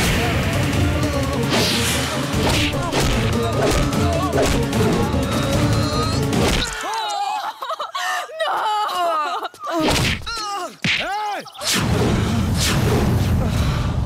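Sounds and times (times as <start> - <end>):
dramatic music: 0.0 - 6.8
men shouting and groaning: 0.1 - 11.7.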